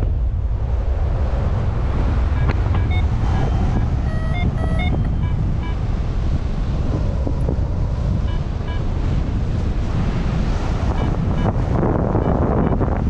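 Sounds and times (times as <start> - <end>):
wind rushing over microphone: 0.0 - 13.0
variometer electronic beeps: 2.3 - 5.8, 8.2 - 8.9, 10.9 - 13.0.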